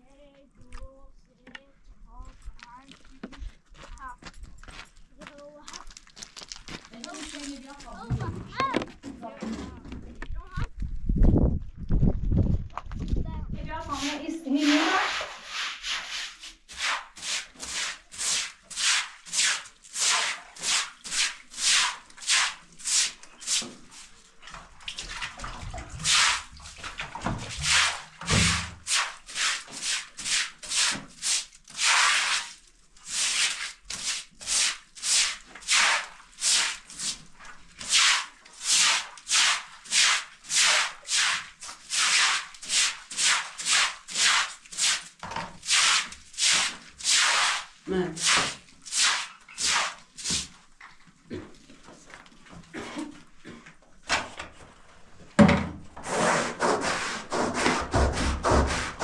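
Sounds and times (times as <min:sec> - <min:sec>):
plastic bucket bump: 0:08.0 - 0:10.3, 0:27.0 - 0:28.8, 0:55.4 - 0:55.8
broom swishing over wet floor: 0:13.7 - 0:53.7, 0:56.0 - 0:59.0.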